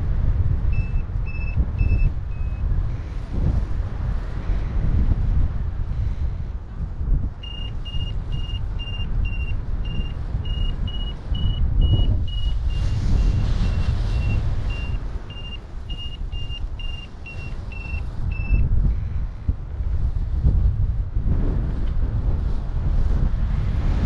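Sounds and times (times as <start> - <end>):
wind on microphone: 0.0 - 24.0
variometer beeping: 0.7 - 2.7, 7.4 - 18.7.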